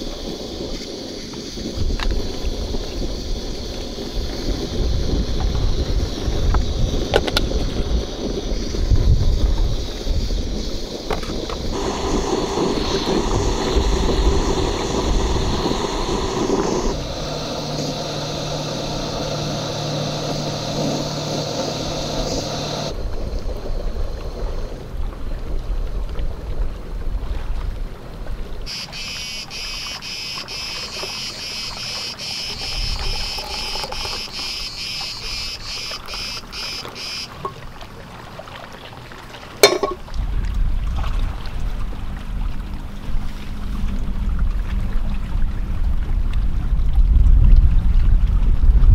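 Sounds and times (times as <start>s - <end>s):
cicadas chirring: 0.0s - 24.8s, 28.7s - 37.7s
steady rushing noise: 0.0s - 24.9s.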